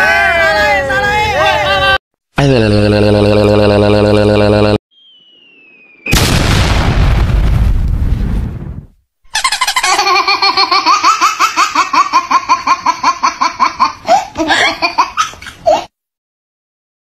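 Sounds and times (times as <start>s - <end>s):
baby giggling: 9.3s - 15.9s.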